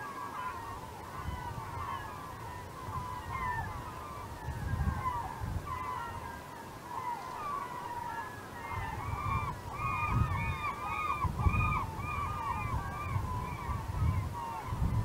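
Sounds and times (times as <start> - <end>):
gulls calling: 0.0 - 15.0.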